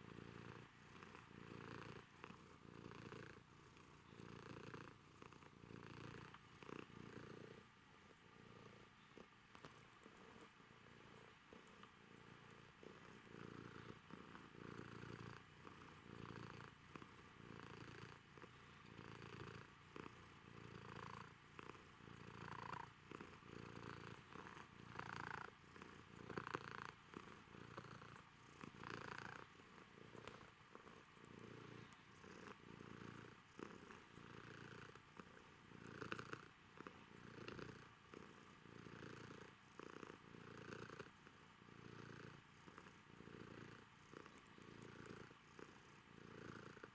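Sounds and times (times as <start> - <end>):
cat purring: 0.0 - 46.9.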